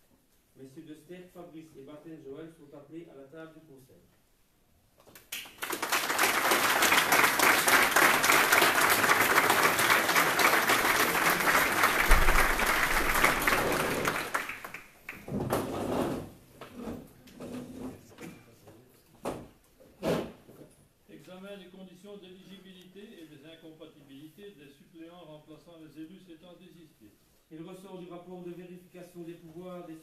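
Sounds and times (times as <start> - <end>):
audience applauding: 5.3 - 15.3.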